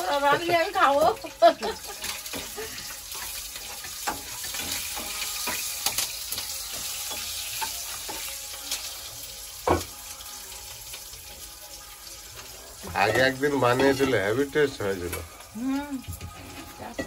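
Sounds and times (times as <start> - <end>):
oil sizzling in pans: 0.0 - 17.0
metal spatula scraping a pan: 1.8 - 9.8, 12.2 - 15.2.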